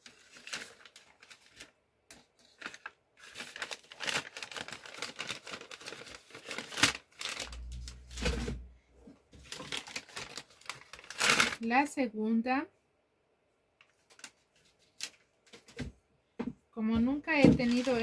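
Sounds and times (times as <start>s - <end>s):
paper wrapping rustling: 0.0s - 8.7s, 9.4s - 11.6s, 13.8s - 15.8s, 17.4s - 18.0s.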